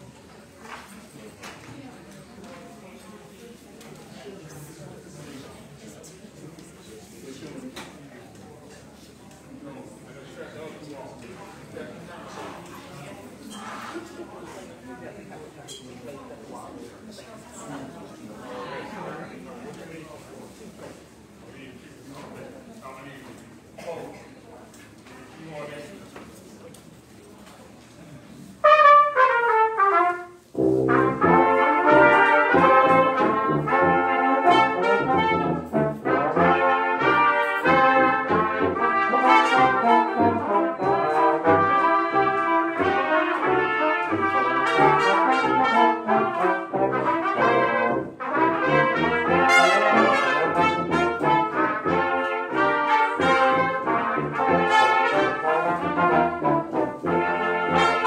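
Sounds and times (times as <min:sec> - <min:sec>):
brass quintet playing: 0:28.6 - 0:58.0.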